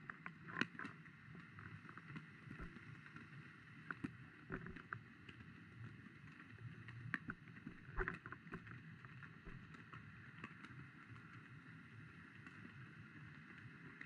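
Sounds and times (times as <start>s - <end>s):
faint low water rumble: 0.0s - 14.0s
light clicks and taps: 3.9s - 5.4s, 6.8s - 11.4s.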